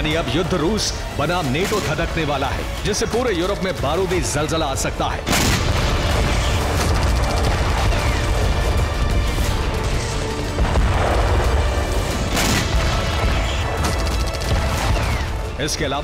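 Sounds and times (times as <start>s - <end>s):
background music: 0.0s - 16.0s
explosions booming: 5.2s - 15.4s.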